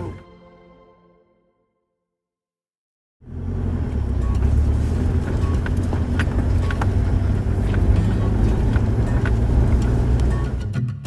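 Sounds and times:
engine and road rumble: 3.2 - 11.0.

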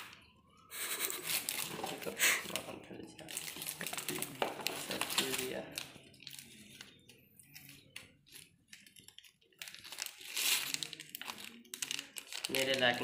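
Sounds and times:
plastic packaging crinkling: 1.1 - 13.0.

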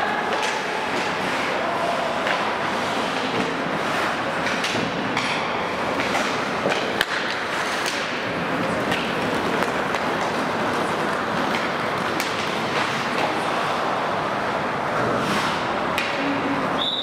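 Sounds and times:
skate blades scraping ice: 0.2 - 4.8, 5.7 - 13.8, 15.0 - 15.7
hockey sticks and puck knocking: 0.2 - 13.5, 15.1 - 16.3.

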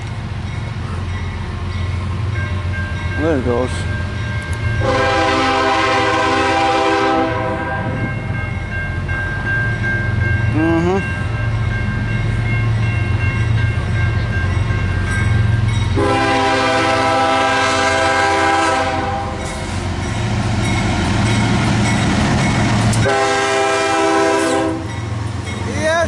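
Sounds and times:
diesel locomotive engine rumbling: 0.0 - 26.0
train air horn blasts: 4.8 - 8.0, 16.0 - 19.4, 23.0 - 24.9.

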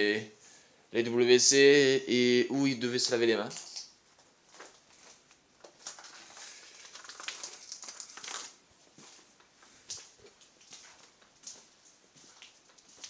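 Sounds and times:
footsteps crunching over debris: 3.5 - 13.0.

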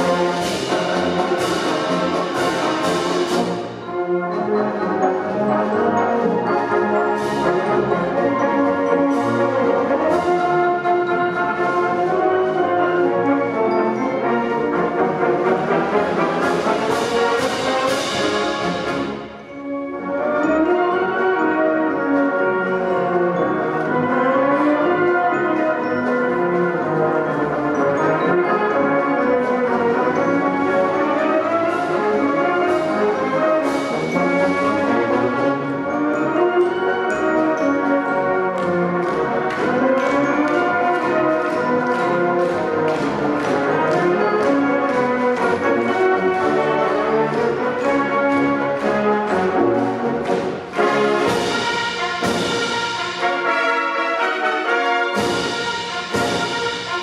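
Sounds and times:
drum and percussion strokes: 0.0 - 4.1, 15.8 - 19.6, 30.4 - 57.0
marching wind band playing: 0.0 - 57.0.

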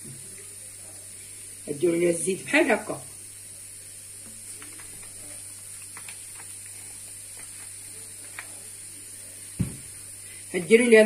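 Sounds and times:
high hiss: 0.0 - 11.0
low electrical hum: 0.0 - 11.0
low thump: 9.6 - 9.9.

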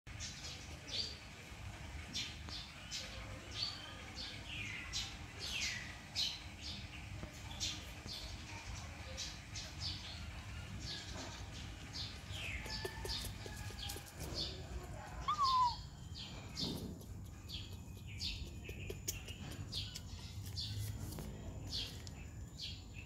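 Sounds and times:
high-pitched animal chirps: 15.1 - 16.0.

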